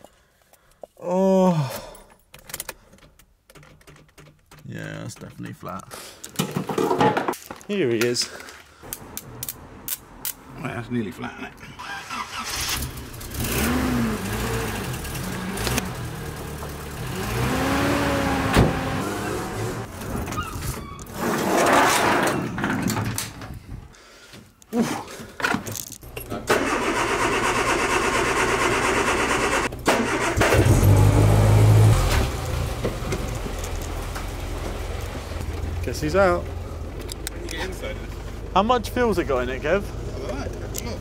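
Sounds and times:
car engines starting and running: 8.8s - 20.4s, 25.5s - 41.0s.

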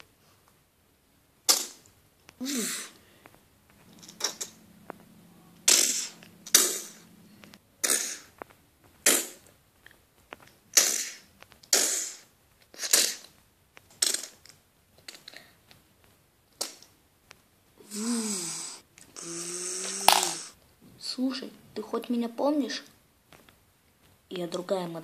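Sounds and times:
toy gunshots: 19.9s - 20.5s.

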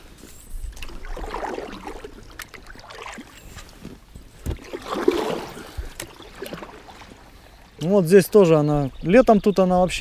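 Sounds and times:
water swirling around hull: 0.0s - 7.8s
paddle strokes splashing: 0.2s - 8.0s.

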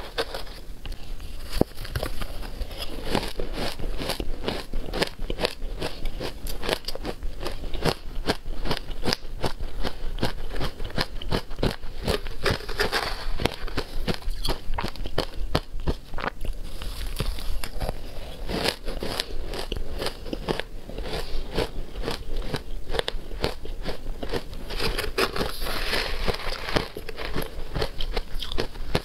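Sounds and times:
ice being chewed: 0.0s - 29.0s
spoon scraping ice in bowl: 12.5s - 13.7s, 24.8s - 27.5s.

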